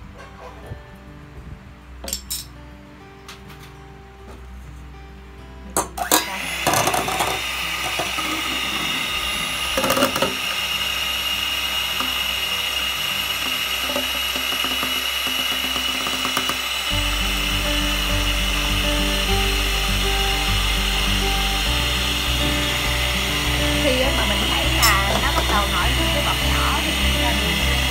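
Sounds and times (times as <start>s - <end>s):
hand mixer whirring: 6.0s - 27.9s.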